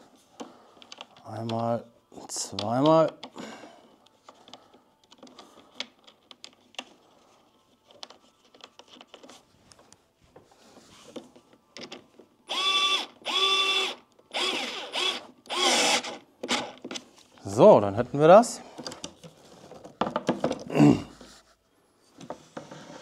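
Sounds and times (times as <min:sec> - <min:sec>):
electric screwdriver motor whine: 0:12.5 - 0:16.7
furniture parts clicking and rattling: 0:18.7 - 0:20.8.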